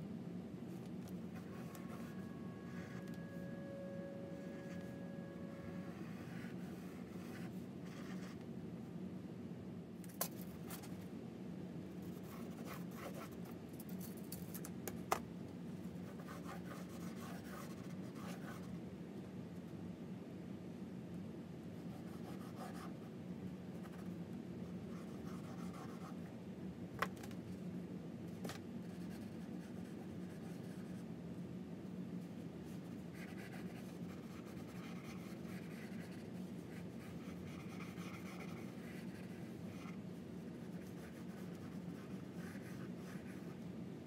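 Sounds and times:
low steady hum: 0.0s - 44.0s
pencil sketching on paper: 5.5s - 8.3s, 32.7s - 40.0s, 40.6s - 43.5s.

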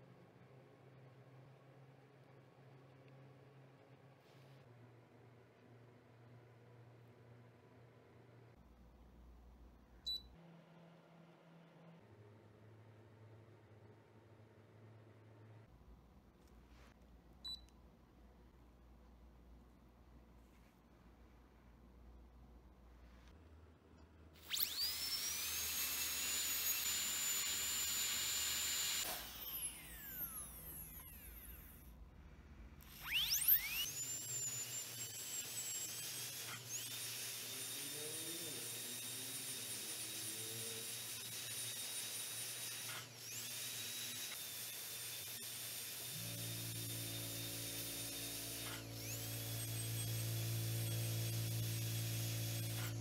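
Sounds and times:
dental drill whining: 24.4s - 31.9s, 32.8s - 53.0s.

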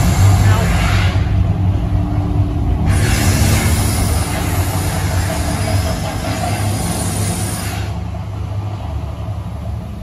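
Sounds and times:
deep rumble: 0.0s - 7.2s
loud rushing hiss: 0.0s - 8.8s.

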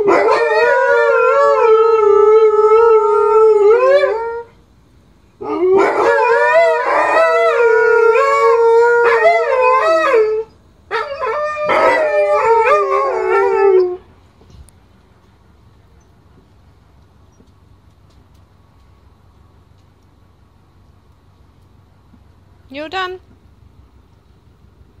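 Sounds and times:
dogs howling: 0.0s - 4.6s, 5.4s - 14.1s.

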